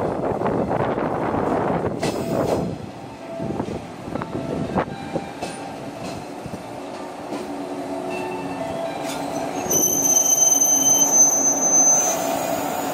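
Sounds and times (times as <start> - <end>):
train rumbling and humming: 0.0 - 12.9
high-pitched brake squeal: 9.0 - 12.9.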